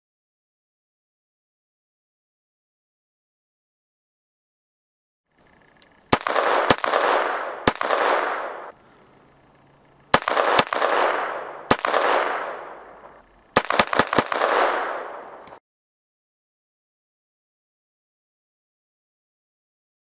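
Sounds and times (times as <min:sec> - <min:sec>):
pistol shots with echo: 0:06.1 - 0:08.8, 0:10.1 - 0:15.6.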